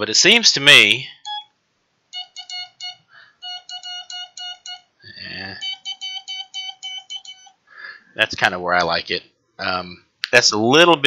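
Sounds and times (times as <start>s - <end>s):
buzzy morse code beeps: 1.1s - 1.5s, 2.2s - 7.5s.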